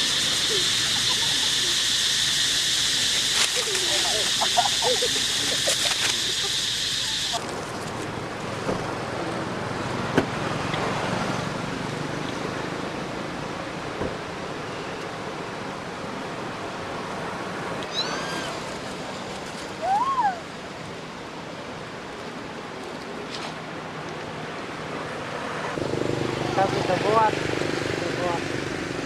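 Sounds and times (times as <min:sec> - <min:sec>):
monkey cooing: 0:00.0 - 0:02.0, 0:03.2 - 0:07.4, 0:17.8 - 0:18.6
chirpy monkey call: 0:00.0 - 0:02.6, 0:17.8 - 0:18.6
steady outdoor hiss: 0:00.0 - 0:29.0.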